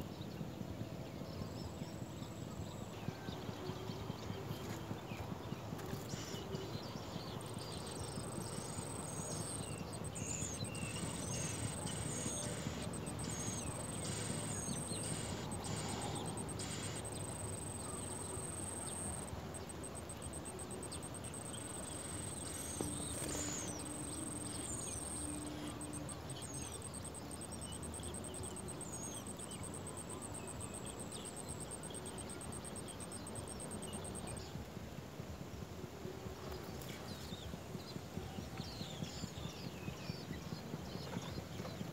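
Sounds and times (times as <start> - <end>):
low background noise: 0.0 - 41.9
high fast-pulsing insect trill: 7.4 - 30.3.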